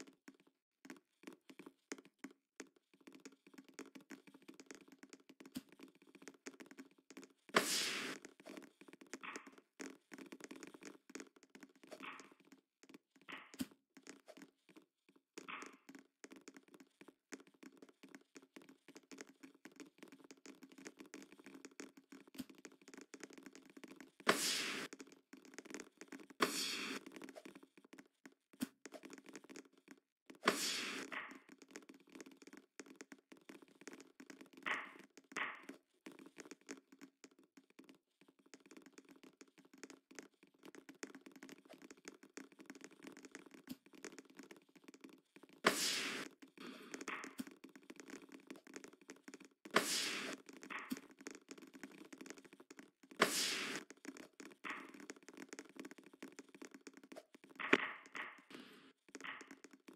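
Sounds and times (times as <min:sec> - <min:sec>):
volleyball thuds and taps: 0:46.8 - 0:59.9.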